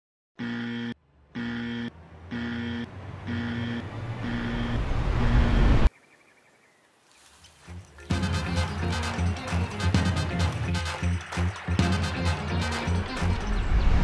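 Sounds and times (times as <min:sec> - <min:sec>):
electronic warning beeps: 0:00.4 - 0:05.9
rising swell of noise: 0:03.0 - 0:05.9.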